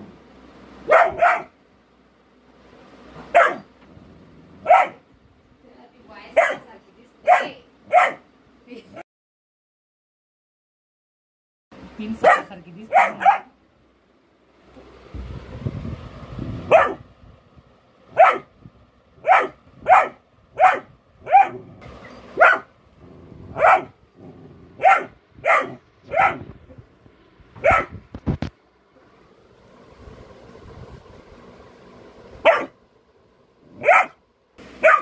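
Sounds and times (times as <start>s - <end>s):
low rumbling noise: 0.0s - 6.2s, 11.8s - 35.0s
puppy barking: 0.8s - 1.6s, 3.2s - 3.7s, 4.6s - 5.0s, 6.3s - 8.3s, 12.2s - 13.6s, 16.7s - 17.1s, 18.1s - 18.5s, 19.2s - 21.8s, 22.4s - 22.7s, 23.5s - 24.0s, 24.8s - 26.6s, 27.6s - 28.0s, 32.4s - 32.8s, 33.8s - 34.2s, 34.8s - 35.0s.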